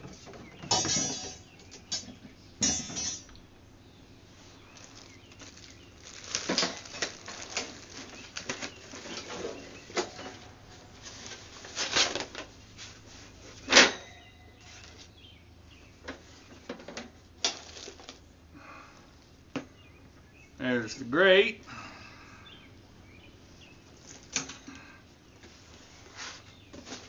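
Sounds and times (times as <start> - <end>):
metal grill parts clattering: 0.6 - 3.3, 13.7 - 14.3
cardboard rustling: 4.7 - 10.2.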